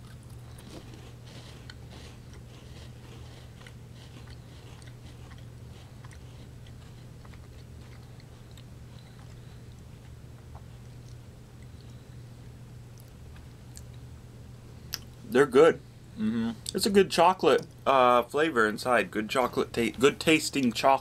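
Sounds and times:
people chewing crunchy biscuits: 0:00.0 - 0:14.1
steady low hum: 0:00.0 - 0:21.0.

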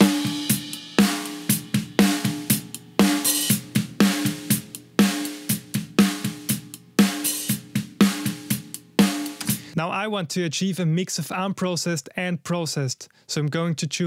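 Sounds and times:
kick hi-hat and cymbal hits: 0:00.0 - 0:09.8
compressed snare hits: 0:09.0 - 0:09.8.

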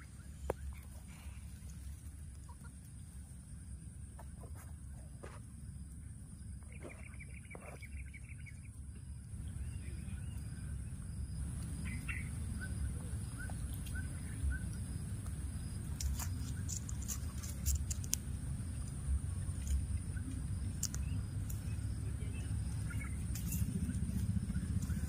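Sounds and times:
steady low rumble: 0:00.0 - 0:25.0
faint high chirping calls: 0:06.0 - 0:18.0, 0:18.6 - 0:25.0.

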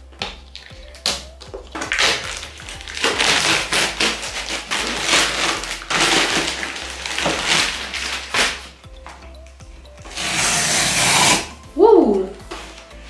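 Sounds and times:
plastic film crinkling and tearing: 0:00.2 - 0:08.8.

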